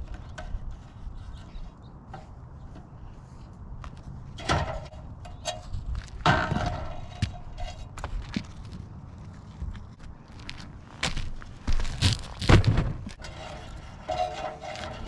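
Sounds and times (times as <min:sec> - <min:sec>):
wind rumble on microphone: 0:00.0 - 0:10.6
scraping rustles: 0:10.4 - 0:15.0.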